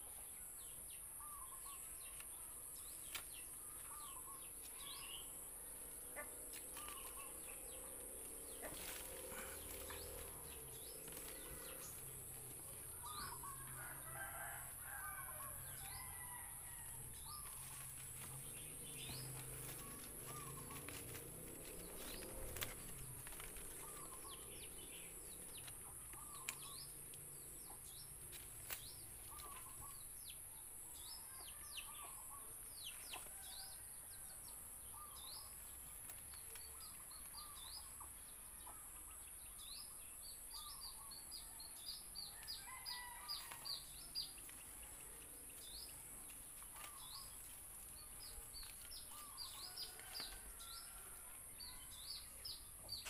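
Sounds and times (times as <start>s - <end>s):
small birds chirping: 0.0s - 34.2s, 34.9s - 53.0s
leaves rustling: 1.9s - 27.0s, 28.1s - 30.0s, 42.6s - 51.3s.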